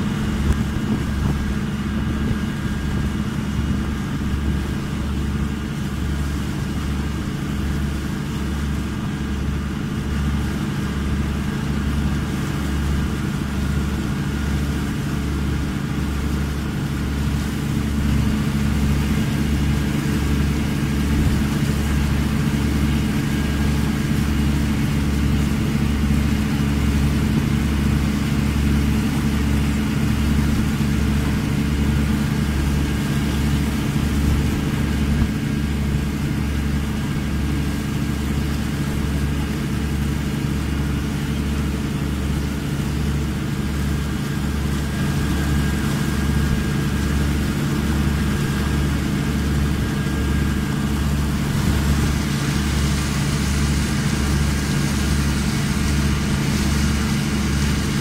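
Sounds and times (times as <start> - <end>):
boat engine droning: 0.0 - 58.0.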